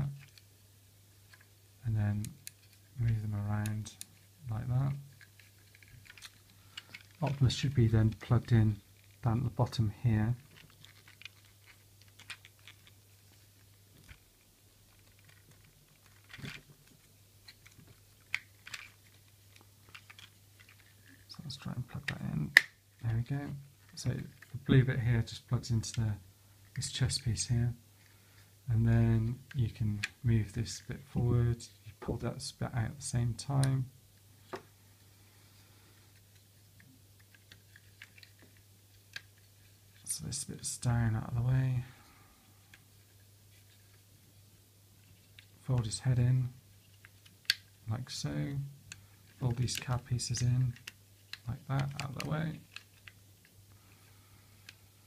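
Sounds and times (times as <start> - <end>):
low steady hum: 0.0 - 55.0
plastic toy parts clicking: 5.1 - 7.4, 10.4 - 13.0, 14.9 - 21.3, 37.2 - 39.4, 47.0 - 47.7, 48.8 - 53.5
toy parts clattering: 5.1 - 9.2, 10.4 - 14.2, 14.9 - 21.3.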